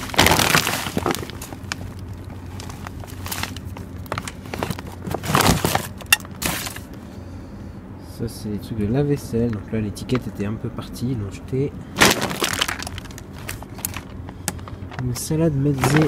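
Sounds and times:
packaging rustling and crinkling: 0:00.0 - 0:06.9, 0:12.0 - 0:16.0.

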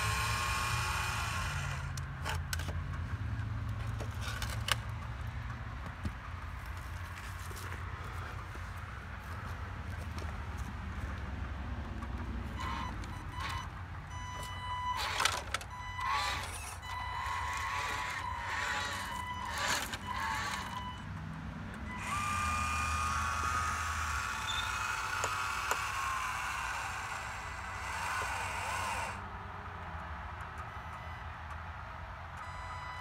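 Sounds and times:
small electric motors running: 0:00.0 - 0:02.7, 0:12.5 - 0:13.7, 0:14.4 - 0:21.0, 0:21.9 - 0:29.3.

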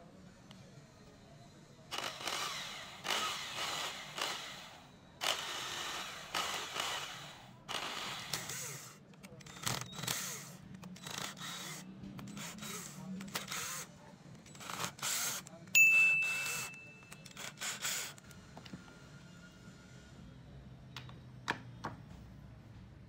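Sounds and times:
drill-driver clicks and whirrs: 0:01.9 - 0:15.6, 0:16.4 - 0:18.4.

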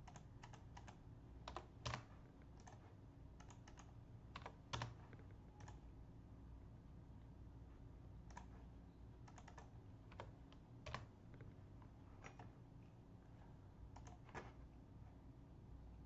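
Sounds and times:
computer mouse and keys clicking: 0:00.0 - 0:05.9, 0:08.2 - 0:14.8
low steady hum: 0:00.0 - 0:16.0.

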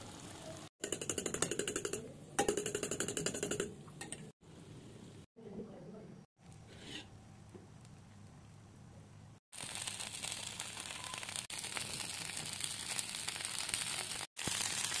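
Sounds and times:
food sizzling in a frying pan: 0:00.0 - 0:00.7, 0:09.5 - 0:15.0.

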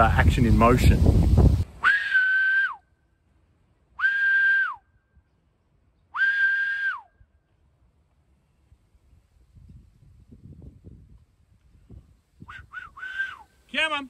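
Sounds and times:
long high whistle calls: 0:01.8 - 0:03.1, 0:04.0 - 0:05.2, 0:06.0 - 0:07.4, 0:12.4 - 0:13.7.

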